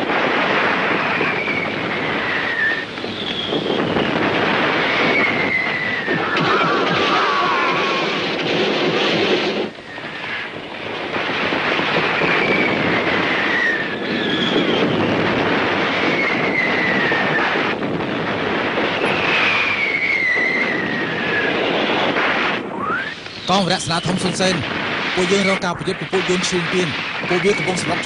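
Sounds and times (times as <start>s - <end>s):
descending whistles: 22.8s - 24.6s.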